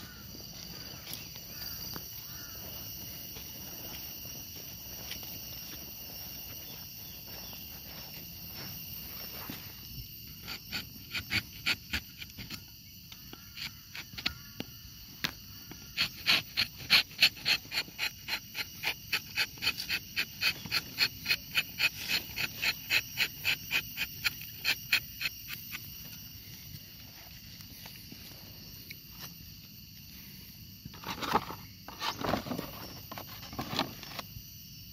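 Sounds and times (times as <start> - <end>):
knife scraping tree bark: 10.2 - 14.5, 15.3 - 28.0, 30.9 - 34.3.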